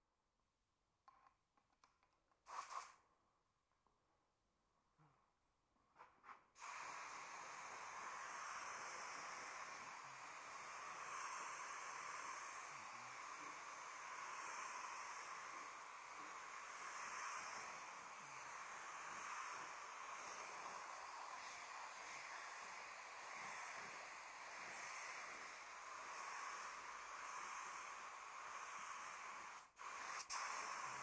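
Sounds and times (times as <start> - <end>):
spray gun puffs: 2.4 - 3.0, 6.0 - 31.0
spray gun hissing: 6.6 - 31.0.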